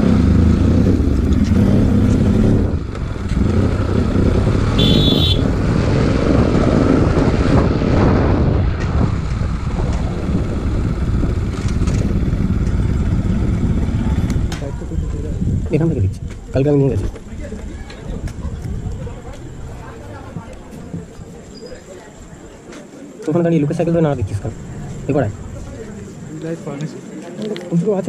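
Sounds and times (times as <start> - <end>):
motorcycle engine running: 0.0 - 16.4
wind rumble on microphone: 0.0 - 21.8.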